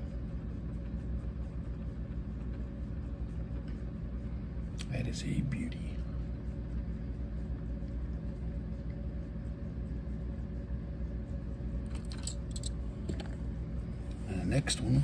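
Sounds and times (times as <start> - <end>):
low hum and rumble: 0.0 - 15.0.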